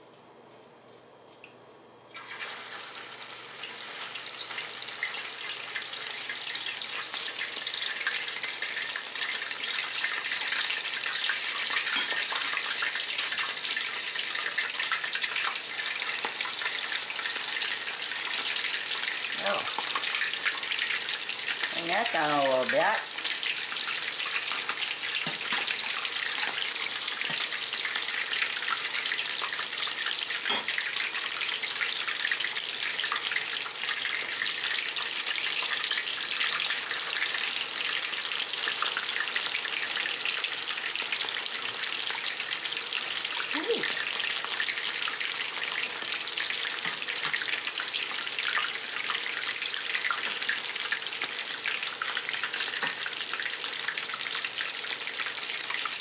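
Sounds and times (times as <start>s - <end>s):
frying oil sizzling and crackling: 2.0s - 56.0s.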